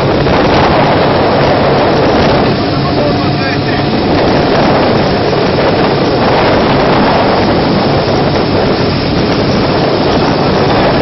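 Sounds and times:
boat engine drone: 0.0s - 11.0s
rushing water and spray: 0.0s - 11.0s
wind noise on microphone: 0.0s - 11.0s.

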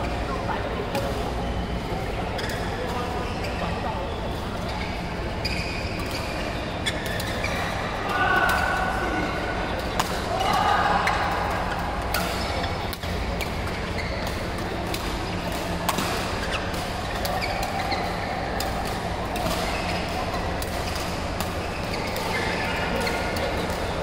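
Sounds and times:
sports hall din: 0.0s - 24.0s
rackets hitting shuttlecocks: 9.8s - 24.0s.

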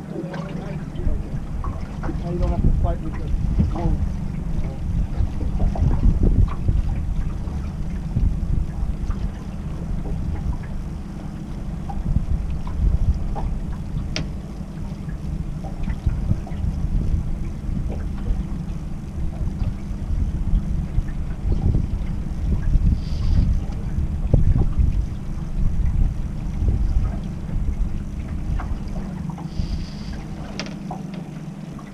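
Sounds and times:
wind rumbling on microphone: 0.0s - 31.9s
light clicks and knocks: 12.6s - 14.5s, 30.1s - 31.9s.

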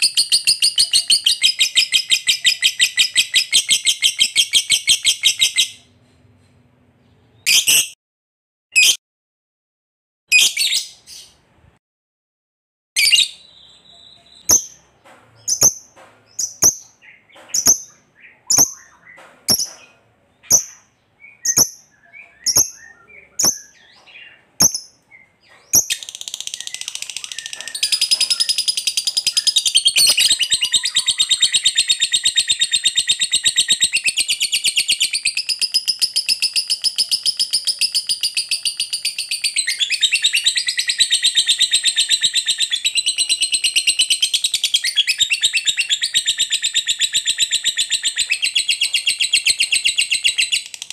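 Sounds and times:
bird chirps: 0.0s - 8.0s, 10.3s - 11.4s, 13.0s - 50.9s
bird chattering trill: 15.4s - 50.9s.

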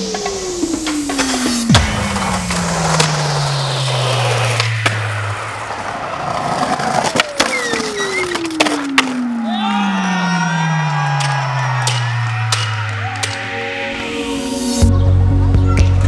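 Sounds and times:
skateboard wheels rolling on concrete: 0.0s - 14.1s
long tone sliding down in pitch: 0.8s - 15.0s
skateboard clacks: 5.7s - 9.6s.

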